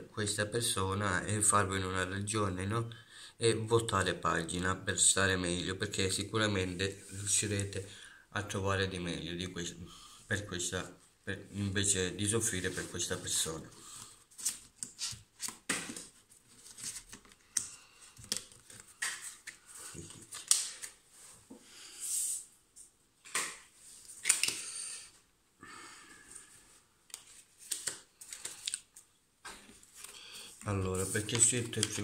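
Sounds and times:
cards rustling and shuffling: 0:12.4 - 0:21.3, 0:23.2 - 0:24.8, 0:27.1 - 0:32.0.

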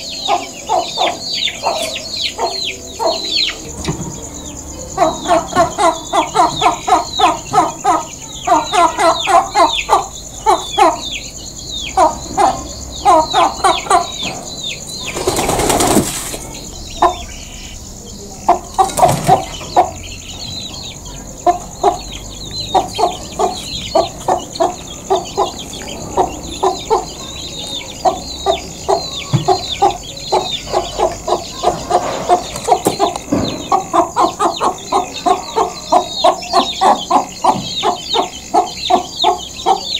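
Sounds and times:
hen clucking: 0:00.0 - 0:39.9
wings flapping: 0:15.0 - 0:16.6, 0:18.8 - 0:19.6.

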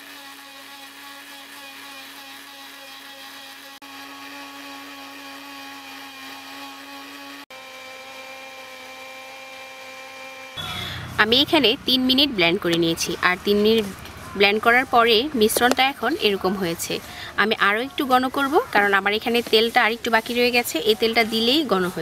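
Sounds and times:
blender motor whining: 0:00.0 - 0:12.3.

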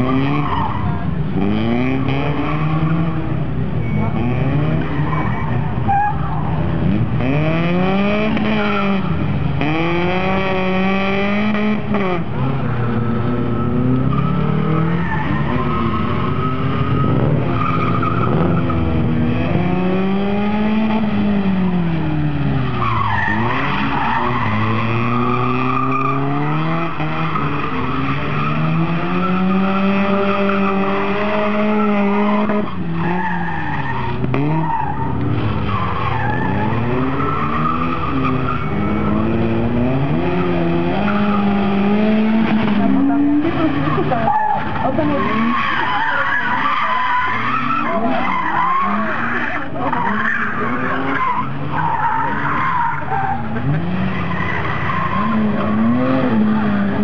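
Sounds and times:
car engine revving: 0:00.0 - 0:57.0
tyres squealing: 0:22.6 - 0:41.8, 0:42.5 - 0:57.0.

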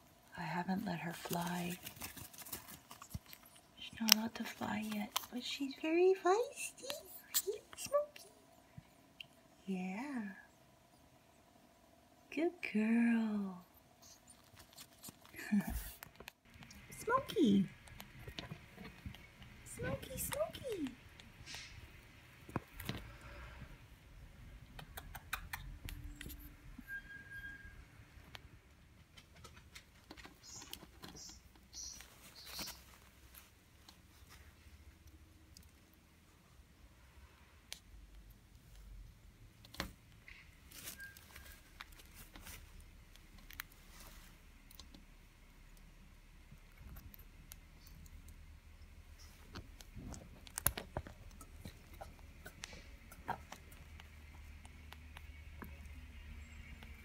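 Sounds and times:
small bird clicks and ticks: 0:01.1 - 0:06.0, 0:29.1 - 0:33.1, 0:46.5 - 0:57.0
bird preening on a towel: 0:39.7 - 0:45.1.

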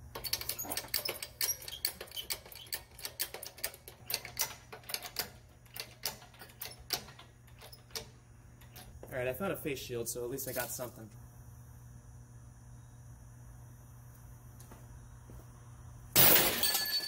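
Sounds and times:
chain hoist clicking: 0:00.1 - 0:08.9.

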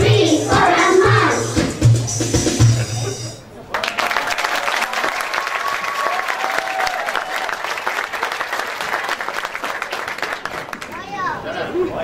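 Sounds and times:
audience applauding: 0:03.6 - 0:11.3
drawn-out cheers: 0:03.7 - 0:09.3.

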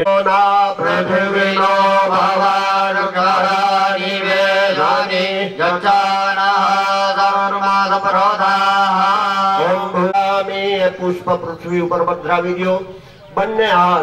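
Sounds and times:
mantra chanting in held notes: 0:00.0 - 0:14.0
breaths: 0:12.8 - 0:13.4.

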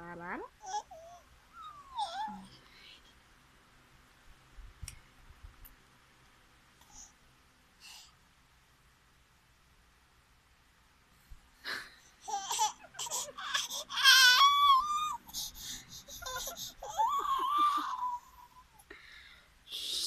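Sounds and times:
baby squealing and laughing: 0:00.6 - 0:02.4, 0:12.2 - 0:18.7.

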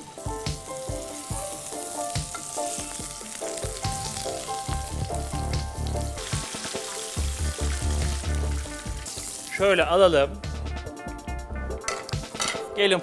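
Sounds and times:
meat sizzling in a frying pan: 0:00.0 - 0:10.3.

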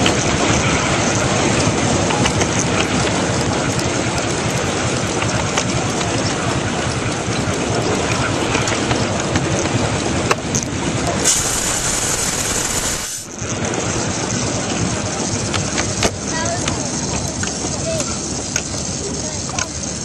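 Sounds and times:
miniature steam locomotive running: 0:00.0 - 0:20.0
sharp steam hiss: 0:11.2 - 0:13.4.

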